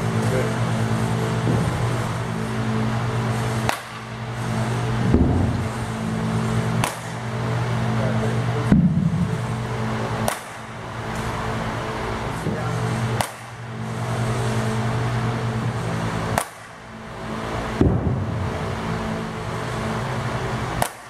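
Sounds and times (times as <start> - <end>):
steady machine hum: 0.0 - 21.0
heavy thud: 1.4 - 2.0, 5.0 - 5.7, 8.7 - 9.4, 17.8 - 18.6
bat cracking against ball: 3.3 - 5.9, 6.6 - 7.4, 10.1 - 11.4, 13.1 - 13.7, 16.2 - 16.8, 20.7 - 21.0.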